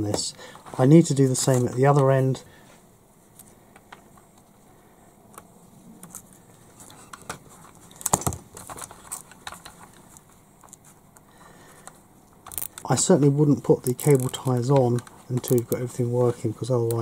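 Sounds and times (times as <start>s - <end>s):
plastic clicks and rustles: 5.3s - 13.0s, 13.6s - 16.0s.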